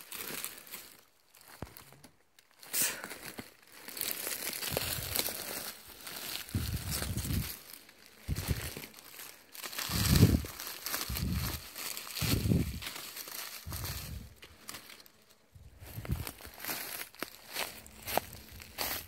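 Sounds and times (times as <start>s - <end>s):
leaf litter rustling and crackling: 0.0s - 19.0s
dull low thumps: 6.5s - 7.5s, 8.3s - 8.8s, 13.7s - 14.4s.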